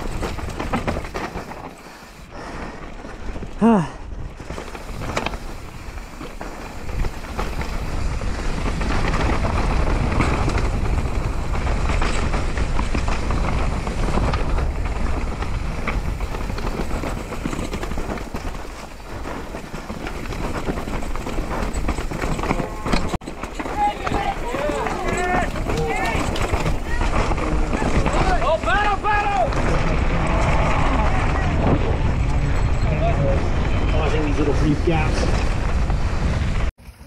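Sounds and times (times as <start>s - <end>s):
chain and frame clatter: 0.0s - 2.2s, 4.4s - 29.9s
tyres over dirt and rock: 0.0s - 36.7s
wind rumble on microphone: 2.4s - 23.2s, 24.4s - 36.7s.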